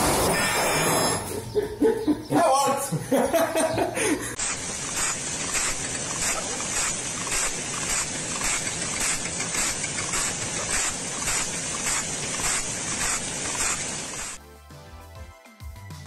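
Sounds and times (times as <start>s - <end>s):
grinding wheel rasping against blade: 4.4s - 14.4s.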